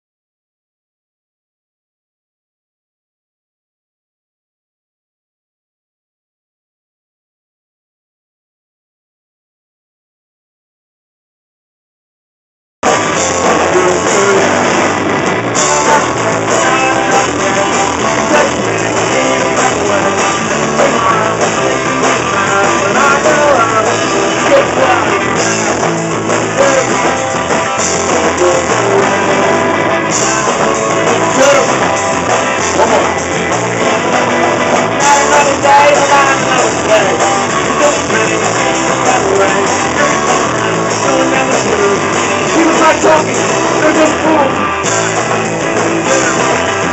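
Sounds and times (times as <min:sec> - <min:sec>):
drum kit: 0:12.8 - 0:46.9
electric guitar: 0:12.8 - 0:46.9
upright bass: 0:12.8 - 0:46.9.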